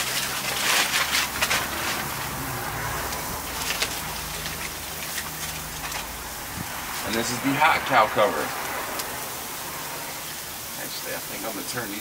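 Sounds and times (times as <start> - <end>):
aluminum foil crinkling: 0.0 - 6.4
meat sizzling over charcoal: 0.0 - 12.0.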